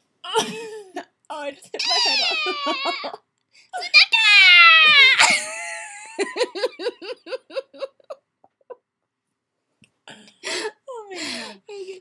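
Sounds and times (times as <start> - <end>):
girl giggling: 1.8 - 3.2, 4.7 - 8.8.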